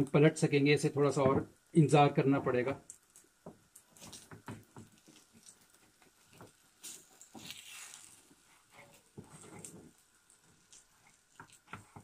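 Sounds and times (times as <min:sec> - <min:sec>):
spatula scraping a frying pan: 0:06.8 - 0:10.0.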